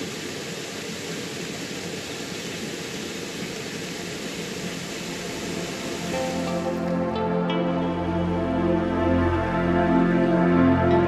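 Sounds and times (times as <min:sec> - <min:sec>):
rain falling on water: 0:00.0 - 0:07.1
small waterfall rushing: 0:00.0 - 0:08.9.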